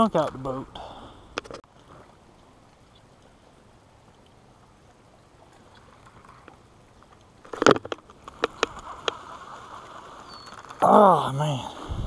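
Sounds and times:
reel sharp clicks: 0:05.8 - 0:10.8
fishing rod clatter: 0:07.4 - 0:10.9.

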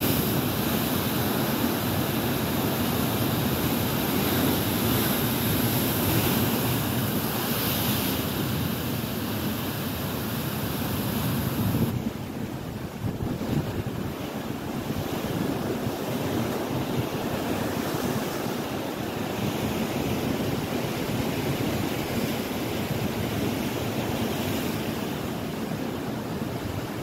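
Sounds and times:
wind on microphone: 0:10.6 - 0:27.0.

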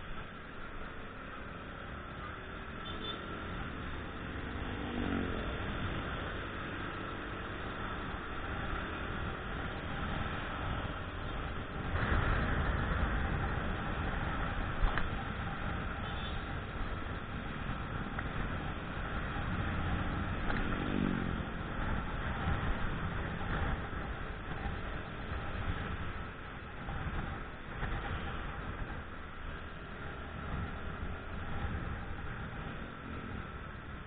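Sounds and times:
street traffic: 0:00.0 - 0:34.0
wind on microphone: 0:07.0 - 0:34.0.

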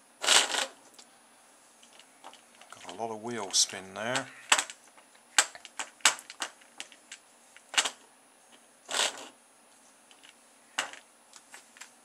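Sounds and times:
plastic toy car clicks and rattles: 0:05.4 - 0:08.0.

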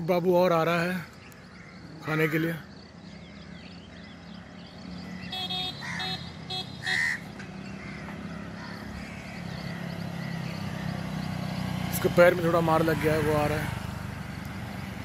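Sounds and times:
motorcycle and scooter engines: 0:00.0 - 0:15.0
short horn beeps: 0:05.3 - 0:07.0.

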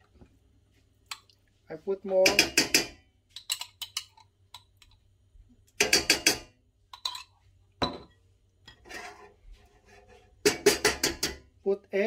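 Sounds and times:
spoon knocking on steel pan: 0:10.4 - 0:11.4.

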